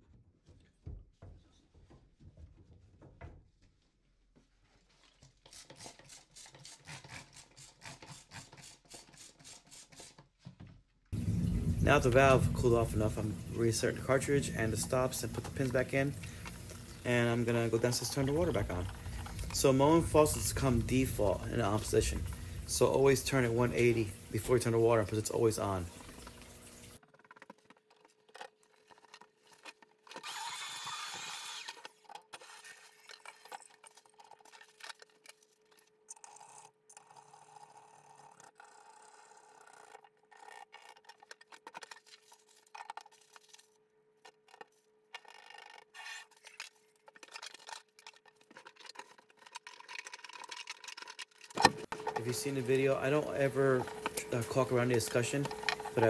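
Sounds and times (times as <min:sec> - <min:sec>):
rasping tool noise: 0:05.4 - 0:10.3, 0:27.0 - 0:33.0
faint steady hum: 0:11.2 - 0:27.0
tool clicks and scraping: 0:27.0 - 0:56.0.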